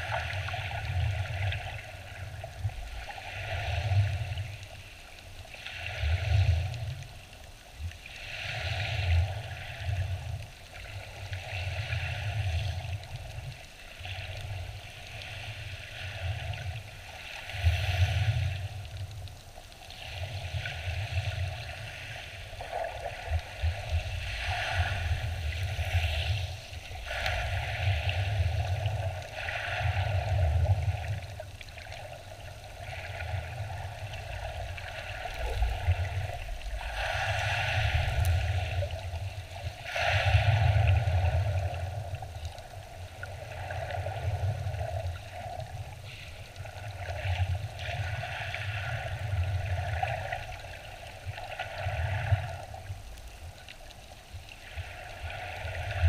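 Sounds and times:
hiss of churned water and bubbles: 0.0s - 56.0s
muffled underwater wave rumbles: 33.3s - 39.4s.

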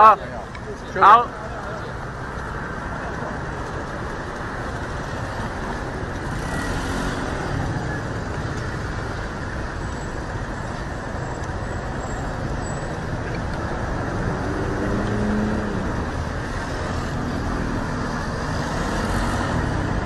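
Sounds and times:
passing cars and scooters: 0.0s - 20.0s.

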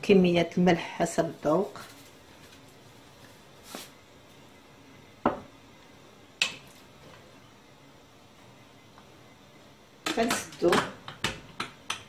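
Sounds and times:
knock on pot: 5.2s - 5.5s.

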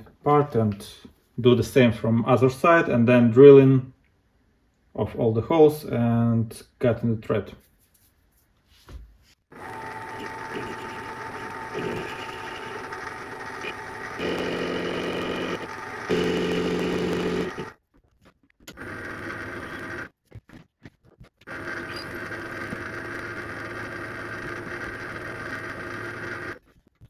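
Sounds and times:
metal lathe humming: 9.5s - 17.8s, 18.7s - 20.1s, 21.5s - 26.6s.

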